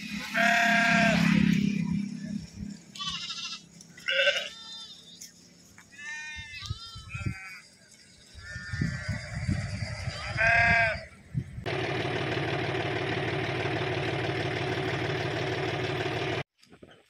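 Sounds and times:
steady engine hum: 0.0 - 5.8, 11.4 - 16.5
sheep bleating: 0.2 - 1.3, 2.9 - 5.2, 5.9 - 7.7, 10.1 - 11.1.

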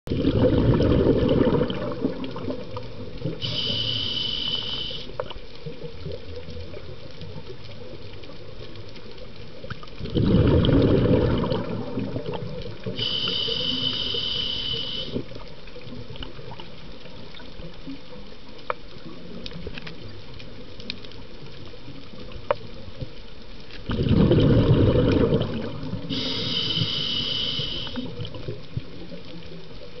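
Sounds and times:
bubbling exhale: 0.1 - 5.2, 10.1 - 15.3, 23.9 - 28.5
faint clicks: 2.1 - 10.1, 11.5 - 23.9, 25.1 - 30.0
regulator hissing inhale: 3.4 - 5.2, 12.9 - 15.3, 26.1 - 28.2.

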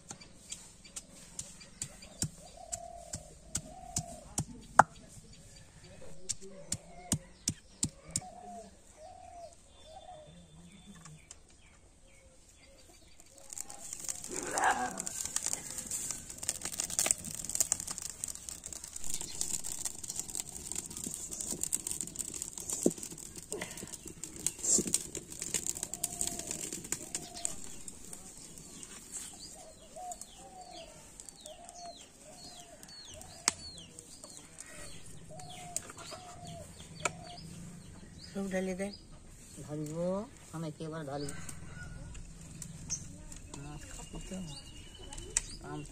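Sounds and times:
birds calling: 0.2 - 4.8, 6.7 - 40.1
fire crackling: 12.8 - 45.9.

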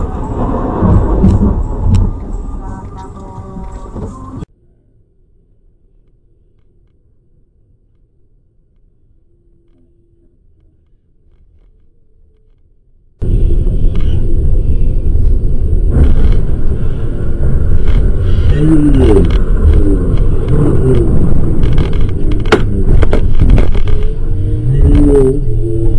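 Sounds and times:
car road and engine rumble: 0.0 - 4.5, 13.2 - 25.9.

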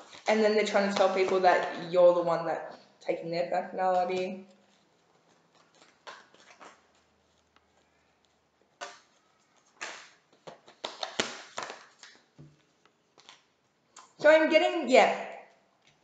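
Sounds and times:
cards rustling: 0.0 - 1.9, 3.9 - 13.8
card flicks and snaps: 9.8 - 10.2.

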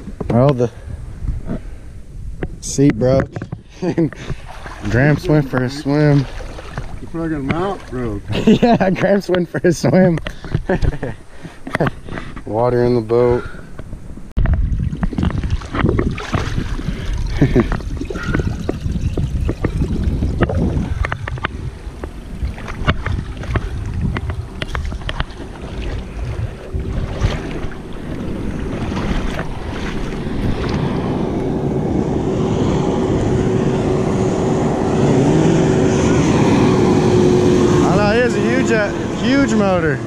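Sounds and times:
wind on microphone: 0.0 - 9.0, 9.9 - 40.0
motorboat engine droning: 3.5 - 12.0, 15.7 - 40.0
rough rushing noise: 14.4 - 40.0.

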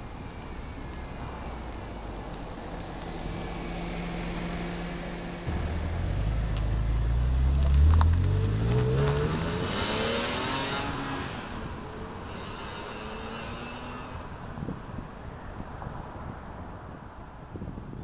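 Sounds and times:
car engine drone: 0.0 - 17.0
car accelerating fly-by: 3.2 - 14.4.

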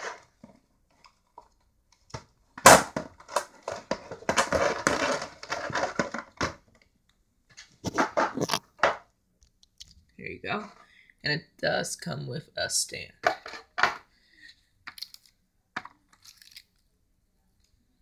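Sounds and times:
plastic packaging crunching: 16.2 - 16.7.

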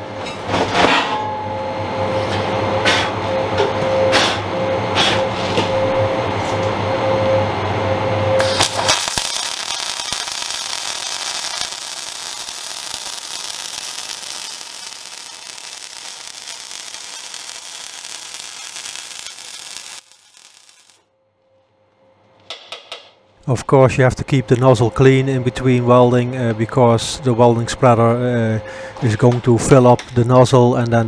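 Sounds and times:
electrical hum: 1.2 - 22.4, 23.4 - 29.5
welding arc crackling and hissing: 8.4 - 21.0.

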